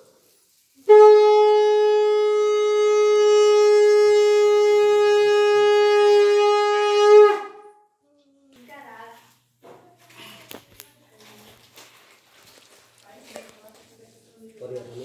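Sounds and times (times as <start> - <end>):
conch shell blown: 0.7 - 8.0.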